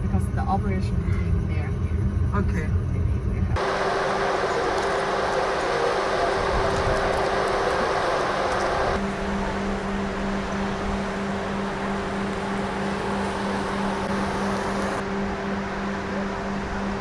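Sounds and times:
road traffic noise: 0:03.5 - 0:17.0.

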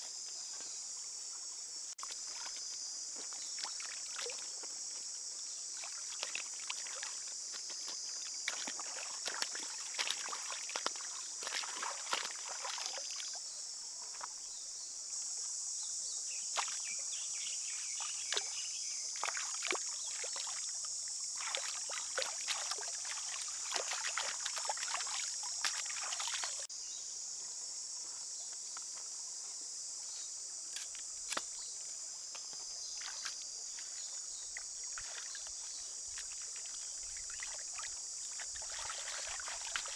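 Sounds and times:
water splashing: 0:05.7 - 0:13.4, 0:19.2 - 0:26.7, 0:34.5 - 0:39.9.

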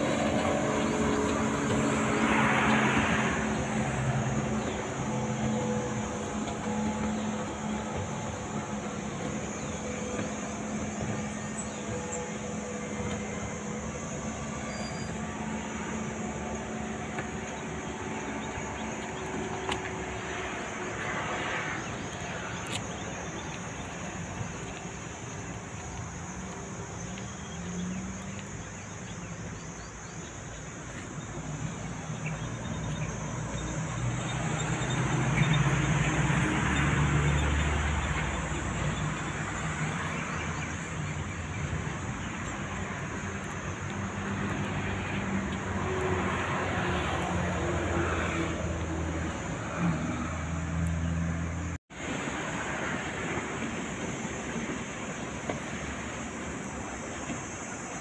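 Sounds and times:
vehicle engine hum: 0:00.0 - 0:58.0.

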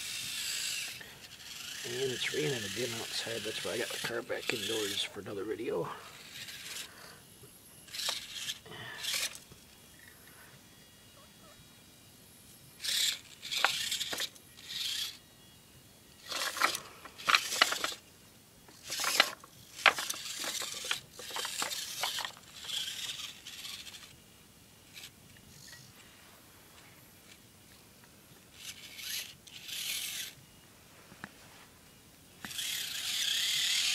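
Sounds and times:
small electric motor buzzing: 0:00.0 - 0:26.1, 0:28.3 - 0:30.6, 0:31.9 - 0:33.9
tyres scraping over rocks: 0:01.8 - 0:05.3, 0:18.8 - 0:23.2.

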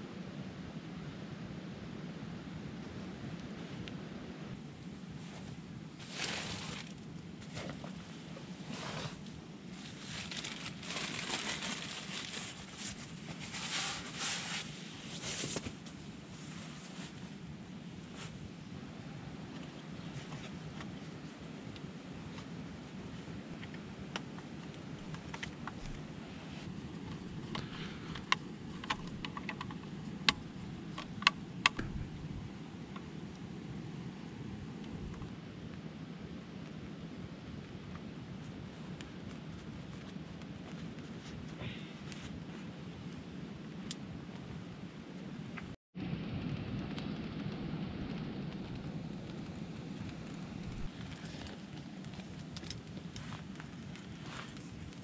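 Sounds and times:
steady low rumble: 0:00.6 - 0:55.0
sleeping mat being unrolled: 0:05.3 - 0:17.4
plastic bag crinkling: 0:09.8 - 0:15.6.

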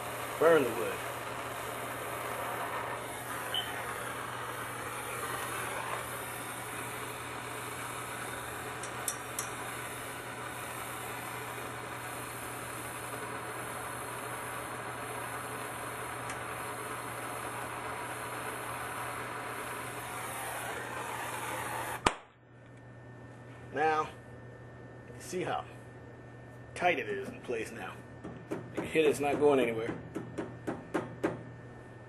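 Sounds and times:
gas torch flame hissing: 0:00.0 - 0:22.2, 0:28.4 - 0:29.8.

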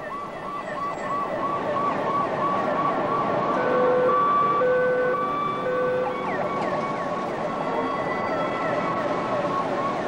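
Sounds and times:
city street traffic: 0:00.0 - 0:10.0
emergency vehicle siren: 0:00.0 - 0:10.0.

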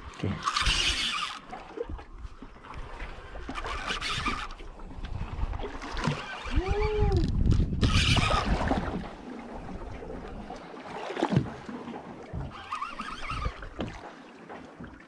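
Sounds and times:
water noise: 0:00.0 - 0:15.0
wind buffeting microphone: 0:04.8 - 0:10.4.

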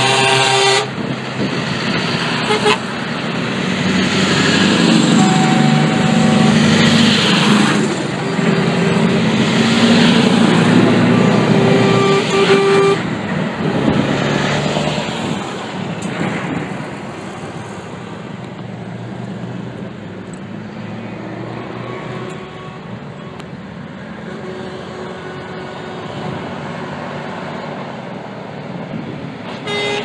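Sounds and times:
truck horn blast: 0:00.0 - 0:01.1, 0:02.3 - 0:03.0, 0:04.9 - 0:13.2, 0:21.8 - 0:23.4, 0:24.2 - 0:26.6, 0:29.5 - 0:30.0
trucks driving past: 0:00.0 - 0:30.0.

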